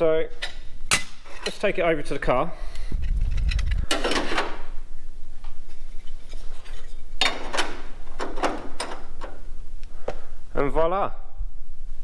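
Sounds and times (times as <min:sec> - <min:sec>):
steel panel clinking and scraping: 0:03.9 - 0:04.7.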